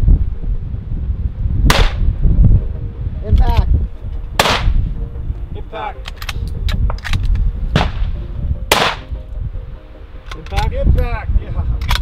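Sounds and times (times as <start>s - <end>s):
low wind rumble: 0.0s - 12.0s
rifle shots with echo: 1.7s - 2.0s, 4.4s - 4.8s, 7.8s - 9.1s.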